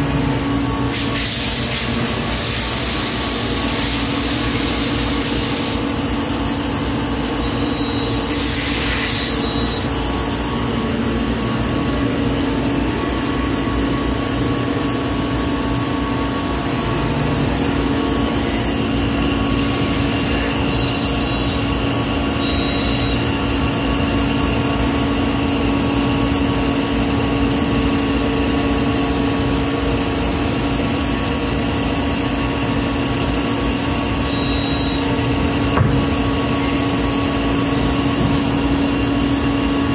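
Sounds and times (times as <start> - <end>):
machinery hum and air rush: 0.0 - 39.9
steady machine tones: 4.3 - 27.1, 31.7 - 39.9.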